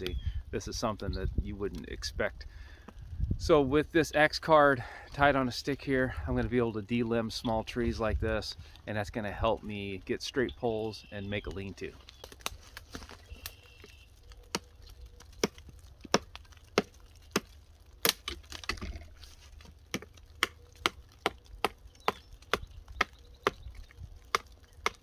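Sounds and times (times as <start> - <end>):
hatchet chopping wood: 15.4 - 19.0, 19.9 - 23.7, 24.3 - 25.0.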